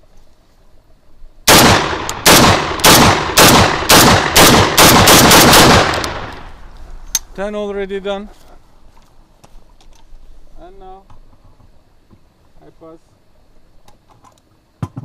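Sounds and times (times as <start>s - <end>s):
shotgun firing rapid shots: 1.5s - 6.4s.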